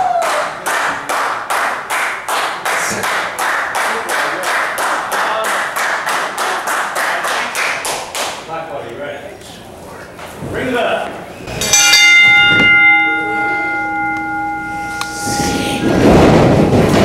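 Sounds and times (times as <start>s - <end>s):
crowd clapping in unison: 0.0s - 8.5s.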